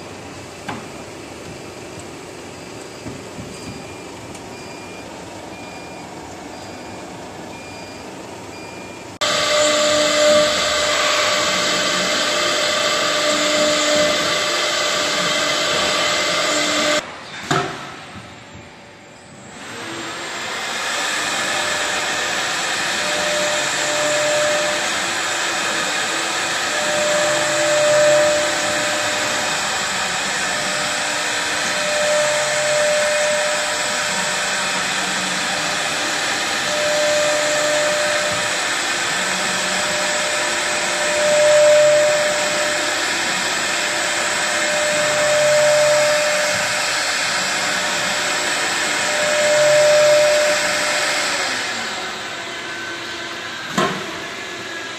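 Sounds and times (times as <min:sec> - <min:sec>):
router spindle whirring cutting wood: 0:09.2 - 0:17.0, 0:19.5 - 0:54.9.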